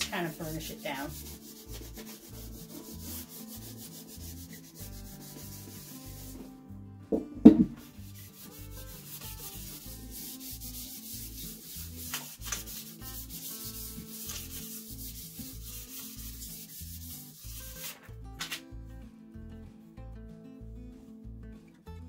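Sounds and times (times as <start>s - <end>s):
paper rubbing scratchily: 0.0s - 6.4s, 7.8s - 18.1s
soft background music: 0.0s - 22.0s
loud thump: 7.1s - 7.8s.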